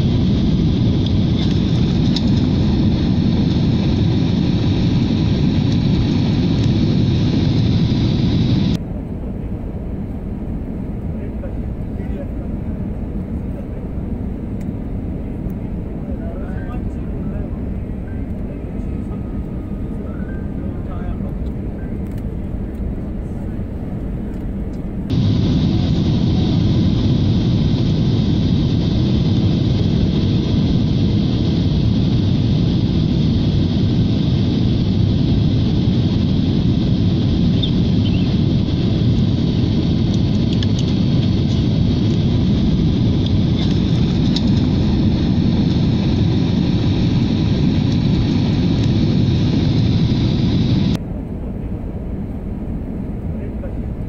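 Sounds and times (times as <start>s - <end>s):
airliner cabin roar: 0.0s - 54.0s.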